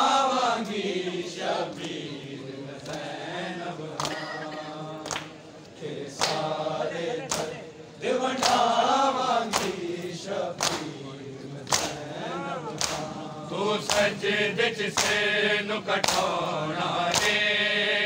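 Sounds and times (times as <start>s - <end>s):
men chanting together: 0.0s - 18.0s
hands slapping bare chests: 5.0s - 5.4s, 6.2s - 6.5s, 7.3s - 7.6s, 9.4s - 9.8s, 10.6s - 10.9s, 11.6s - 12.1s, 12.7s - 13.2s, 13.8s - 14.2s, 14.9s - 15.2s, 16.0s - 16.4s, 17.1s - 17.4s.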